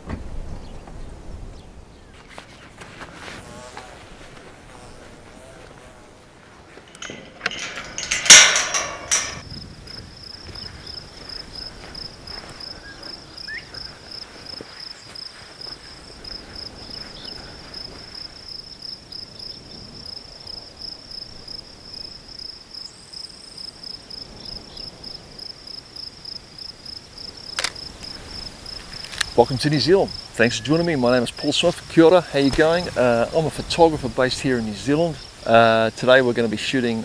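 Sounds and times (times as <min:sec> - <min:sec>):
insect chirping: 0:06.3 - 0:36.2
metal farm gate clattering: 0:06.9 - 0:09.4.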